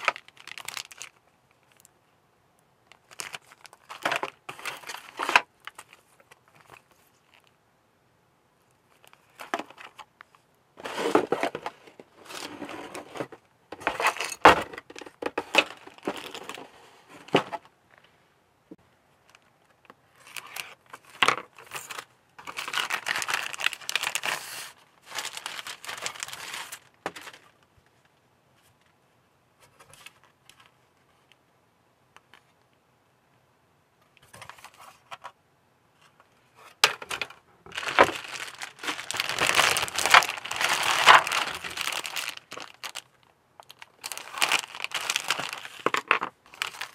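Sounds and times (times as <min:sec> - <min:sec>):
plastic bags crinkling: 0:00.0 - 0:01.9, 0:02.9 - 0:07.5, 0:10.8 - 0:17.7, 0:20.1 - 0:27.7, 0:36.8 - 0:46.9.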